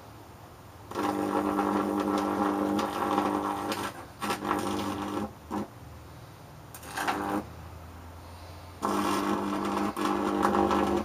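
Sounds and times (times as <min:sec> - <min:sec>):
electrical arc buzzing: 0:00.8 - 0:05.8, 0:06.7 - 0:07.6, 0:08.8 - 0:11.0.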